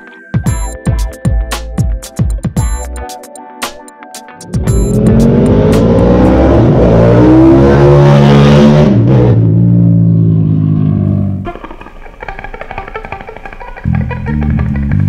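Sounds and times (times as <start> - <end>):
motorcycle engine accelerating: 4.4 - 11.5.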